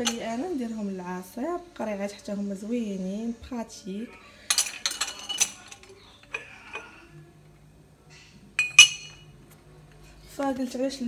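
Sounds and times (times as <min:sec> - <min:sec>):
glassware clinking: 0:00.0 - 0:00.4, 0:04.5 - 0:07.0, 0:08.6 - 0:09.3.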